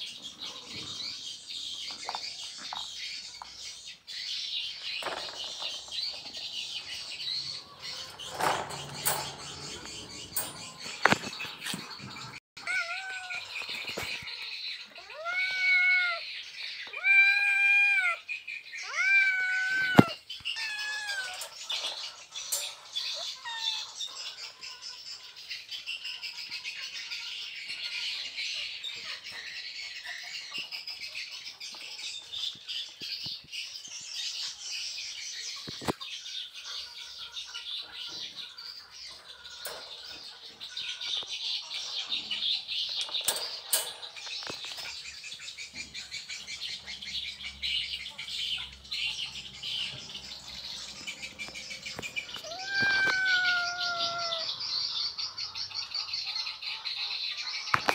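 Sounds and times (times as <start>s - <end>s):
cat yowling: 12.6s - 13.4s, 15.0s - 16.2s, 16.9s - 18.2s, 18.8s - 21.4s, 52.4s - 54.6s.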